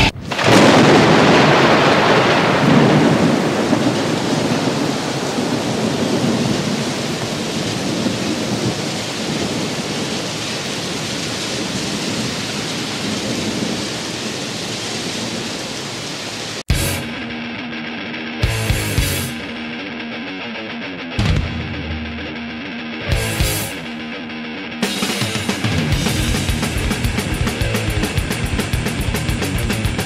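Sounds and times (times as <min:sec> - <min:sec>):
thunder rolling: 0:00.0 - 0:16.0, 0:25.1 - 0:30.0
steady rain: 0:00.0 - 0:17.7, 0:23.1 - 0:30.0.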